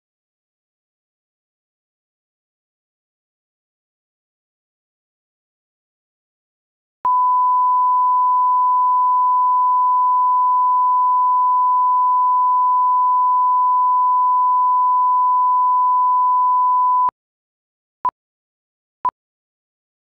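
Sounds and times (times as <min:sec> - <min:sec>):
steady test tone beep: 0:07.1 - 0:17.1.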